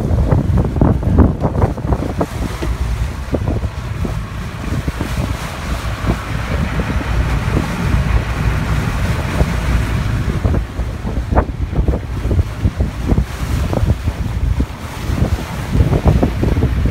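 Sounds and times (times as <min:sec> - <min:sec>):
wake water rushing along hull: 0:00.0 - 0:16.9
wind buffeting microphone: 0:00.0 - 0:16.9.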